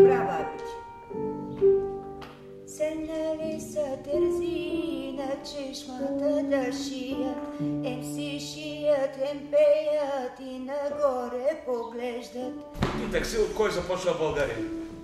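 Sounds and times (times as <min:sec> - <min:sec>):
woman singing with vibrato: 0:02.7 - 0:12.6.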